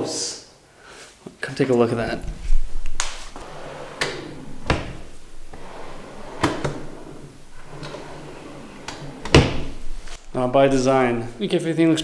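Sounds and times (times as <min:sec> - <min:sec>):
drawers sliding and knocking shut: 0:02.2 - 0:10.9.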